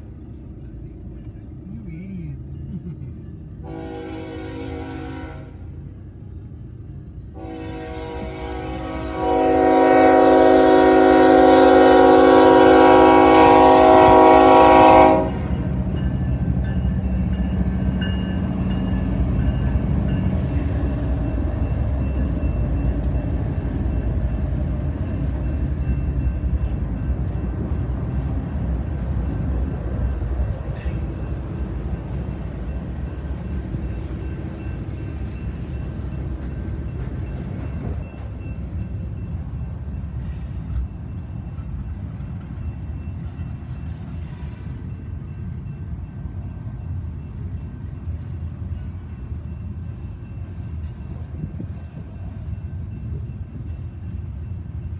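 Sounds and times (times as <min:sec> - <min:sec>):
diesel locomotives rumbling: 0:00.0 - 0:54.9
locomotive air horn blast: 0:03.6 - 0:05.6, 0:07.3 - 0:15.5.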